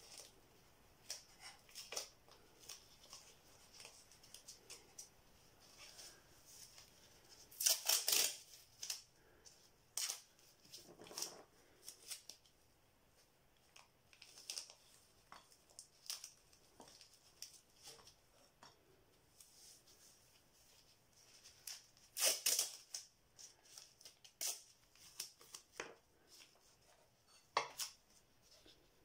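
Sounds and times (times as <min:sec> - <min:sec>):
tape pulled and torn: 0:07.5 - 0:09.1, 0:21.6 - 0:25.8.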